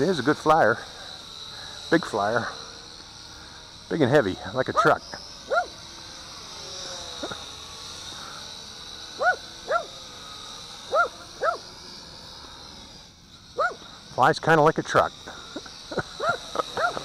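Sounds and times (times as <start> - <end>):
dog barking: 5.5 - 5.7, 9.2 - 9.9, 10.9 - 11.6, 16.2 - 17.0.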